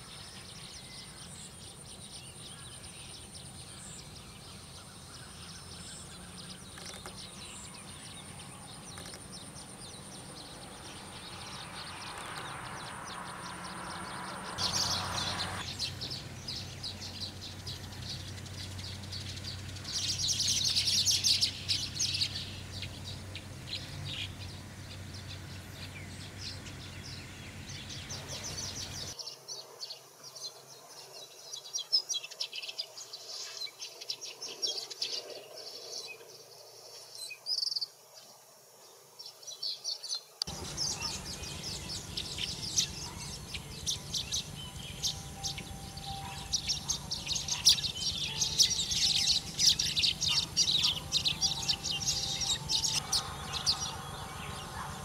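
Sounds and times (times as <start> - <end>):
birds chattering and chirping: 0.0 - 37.9, 39.6 - 55.0.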